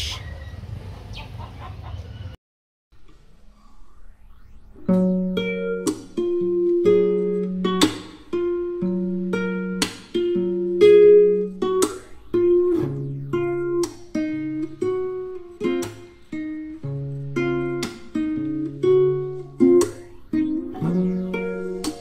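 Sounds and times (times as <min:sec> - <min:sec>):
held low notes: 0:03.0 - 0:22.0
guitar chords strummed: 0:04.9 - 0:22.0.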